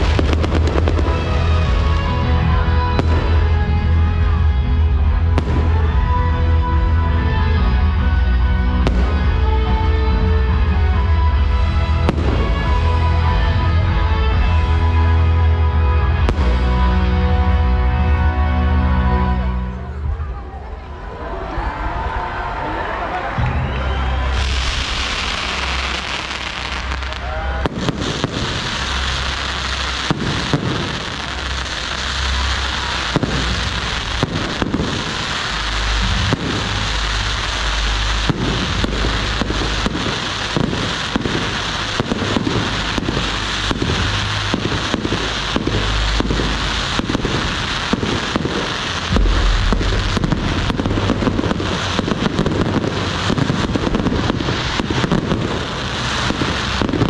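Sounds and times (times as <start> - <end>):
firework bangs and pops: 0.0 - 2.2, 2.9 - 3.7, 5.3 - 6.0, 12.0 - 13.1, 24.3 - 57.0
deep firework booms: 0.0 - 6.5, 11.4 - 13.7, 24.3 - 57.0
crackling hiss: 24.2 - 57.0.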